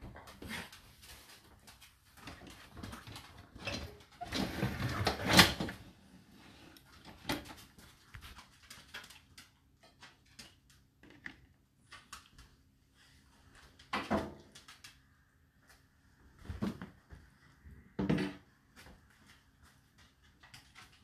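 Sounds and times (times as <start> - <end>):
dishwasher racks sliding on rails: 3.1 - 5.8.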